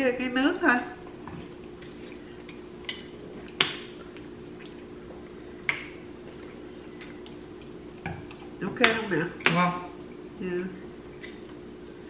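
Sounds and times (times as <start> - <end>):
steady low hum: 0.0 - 12.0
utensils clinking on bowls: 2.9 - 3.6.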